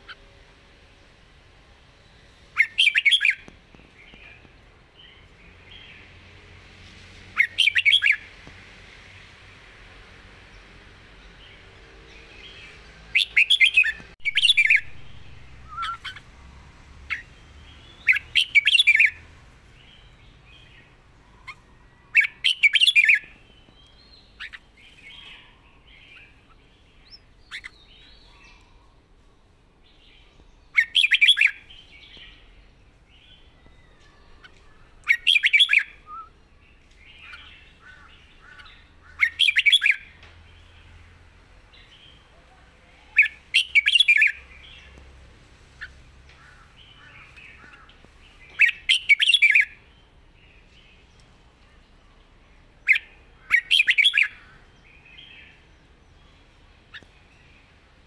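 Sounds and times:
soft bird twittering: 0:01.9 - 0:06.3, 0:07.3 - 0:08.4, 0:11.2 - 0:29.0, 0:29.9 - 0:57.9
bird warbling: 0:13.2 - 0:16.3.

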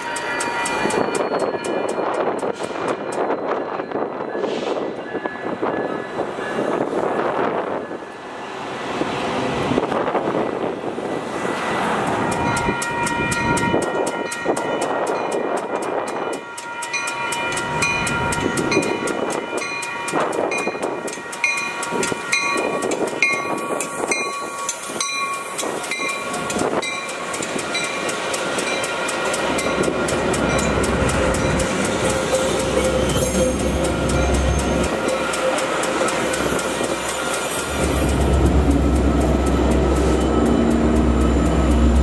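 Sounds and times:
train wheels clattering on rails: 0:00.0 - 0:07.6, 0:08.5 - 0:42.0
bell ringing: 0:16.8 - 0:42.0.

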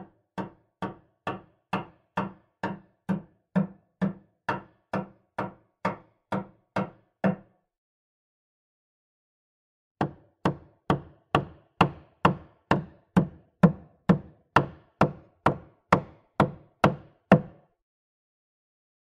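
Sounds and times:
hammer hitting wood: 0:00.4 - 0:07.5, 0:10.0 - 0:17.6.

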